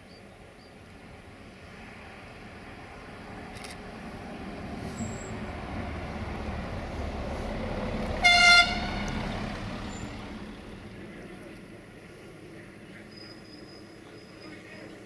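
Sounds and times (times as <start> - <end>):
coach engine driving past: 1.1 - 14.0
horn toot: 8.2 - 9.2.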